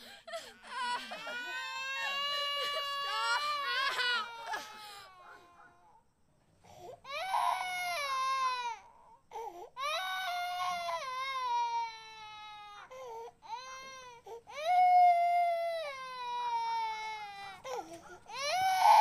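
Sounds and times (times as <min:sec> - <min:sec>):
long wailing cries: 0:00.0 - 0:06.0, 0:07.0 - 0:09.0, 0:09.8 - 0:19.0.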